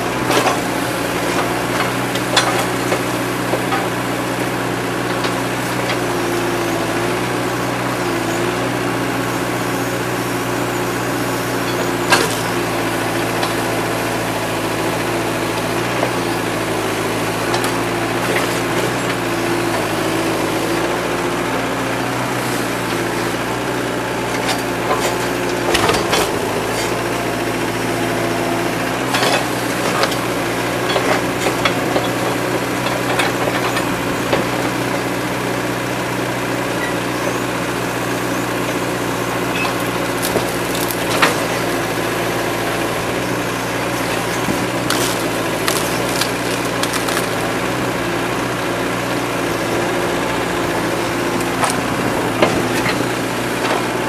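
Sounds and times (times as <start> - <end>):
diesel engine running: 0.0 - 54.0
wood cracking: 39.7 - 41.5, 43.9 - 47.7
debris clattering: 44.6 - 47.5.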